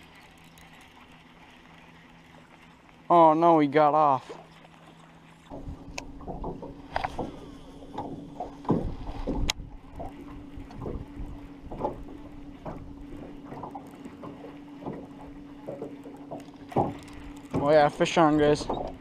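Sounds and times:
low hum: 0.0 - 19.0
water lapping against hull: 0.0 - 19.0
knocks on boat: 5.5 - 10.1, 10.7 - 19.0.

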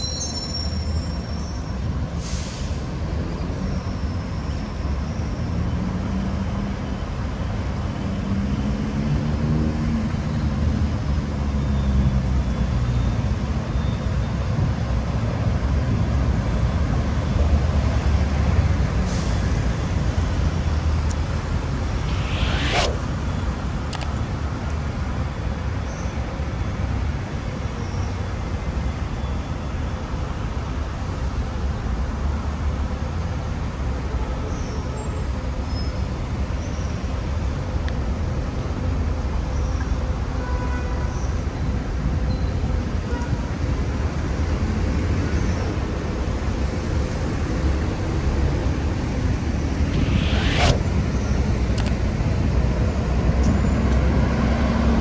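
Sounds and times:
city road traffic: 0.0 - 55.0
short hiss: 21.8 - 23.3, 49.8 - 51.3
sharp click: 51.8 - 52.0.

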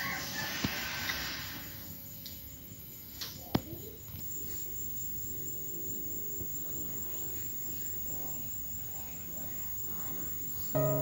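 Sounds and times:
faint high whine: 10.8 - 11.0
steady low hiss: 10.8 - 11.0.

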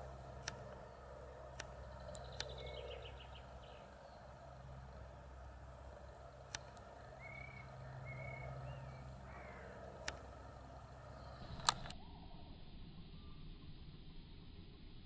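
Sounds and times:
sharp clicks: 0.0 - 12.0
hawk whistled wailing calls: 7.0 - 10.1.

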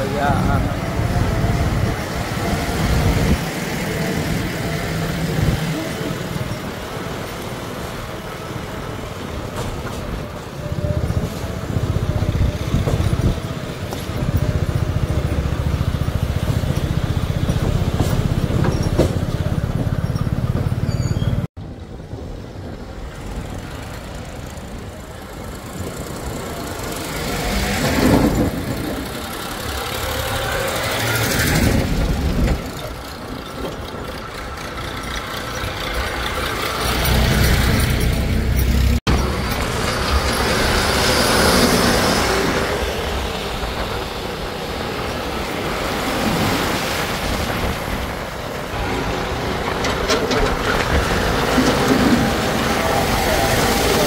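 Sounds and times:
tractor engine running: 10.9 - 21.4, 23.3 - 45.4
diesel engine running: 24.1 - 44.5.

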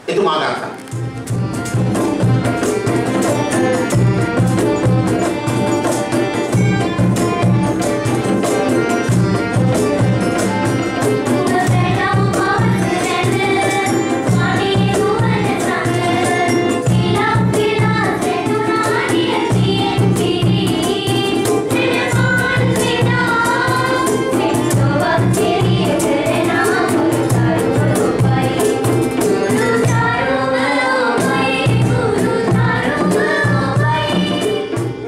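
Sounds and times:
violins: 0.0 - 35.0
girls singing: 11.0 - 34.8.

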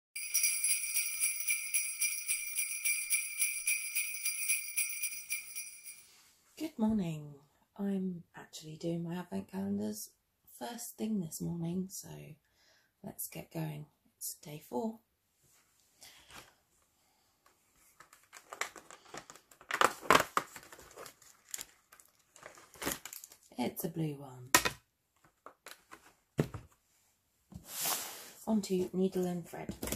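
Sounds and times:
sleigh bells jingling: 0.2 - 6.2
cardboard tearing and crinkling: 18.1 - 23.5.

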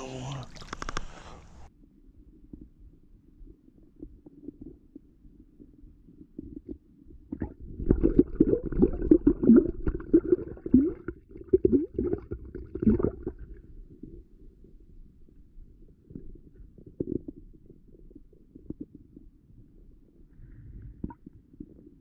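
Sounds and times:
muffled underwater stream rumble: 0.5 - 22.0
underwater knocks and gurgles: 2.2 - 20.3.

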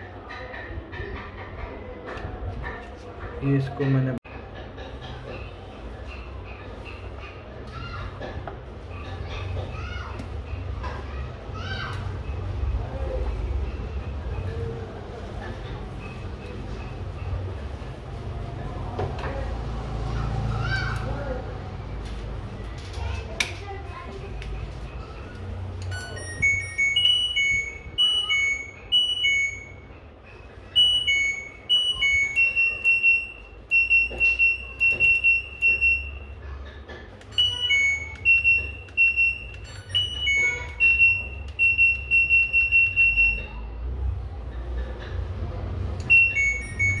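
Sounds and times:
quick repeated beeps: 25.9 - 30.0, 30.7 - 36.4, 37.3 - 43.8, 46.0 - 47.0
two-pitch electronic beeps: 25.9 - 30.0, 30.7 - 36.4, 37.3 - 43.8, 46.0 - 47.0.

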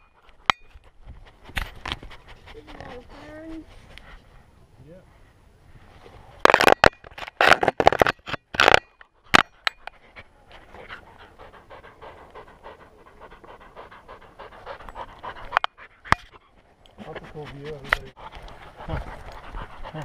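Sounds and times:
puppy panting rapidly: 0.0 - 4.3, 10.0 - 20.0.

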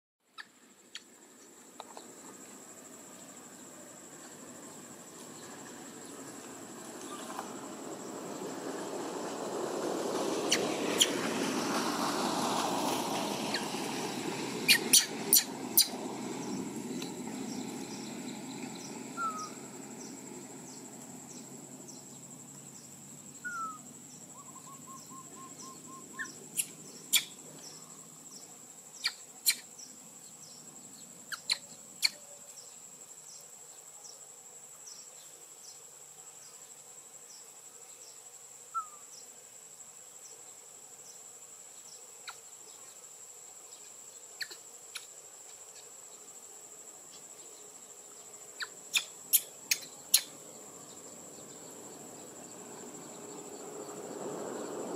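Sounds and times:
crickets droning: 0.3 - 54.9
faint regular ticks: 43.8 - 45.9.

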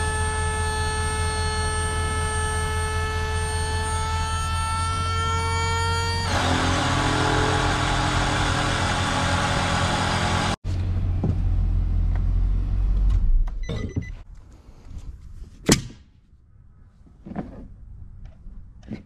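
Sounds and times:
electronic tone: 0.0 - 6.3
loud steady whirring: 0.0 - 10.6.

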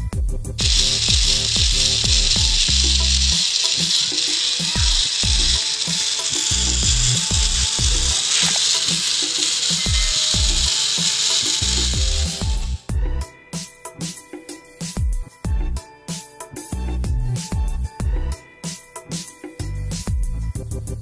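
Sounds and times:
music with thumping bass beat: 0.0 - 3.3, 6.7 - 8.1, 11.7 - 13.3, 14.8 - 15.8, 16.8 - 18.4, 19.6 - 21.0
small electric motor spinning: 0.6 - 12.9.

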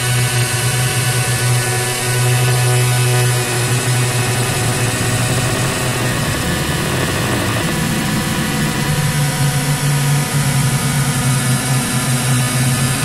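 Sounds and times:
distorted buzzing drone: 0.0 - 13.0
steady low hum: 1.2 - 13.0.

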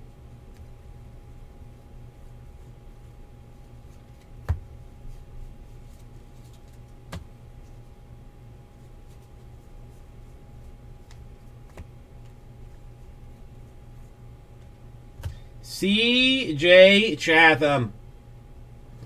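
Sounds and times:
steady low hum: 0.0 - 19.0
cards tapped on a tabletop: 4.1 - 4.7, 7.1 - 7.3, 11.0 - 11.9, 15.2 - 15.4.

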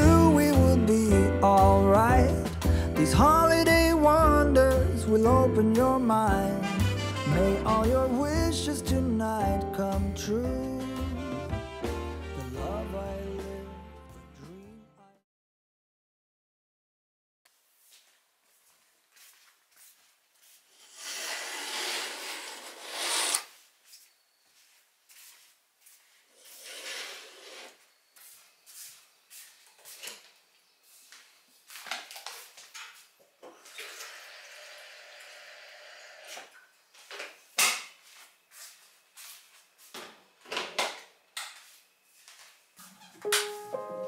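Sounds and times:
running water filling kettle: 33.6 - 36.3.

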